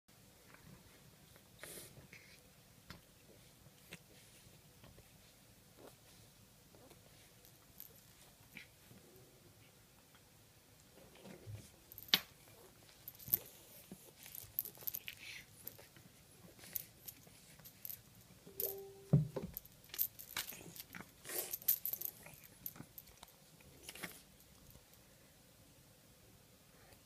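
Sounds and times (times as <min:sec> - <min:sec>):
toy clicking and rustling on floor: 0:11.6 - 0:25.0
thump: 0:19.1 - 0:19.6.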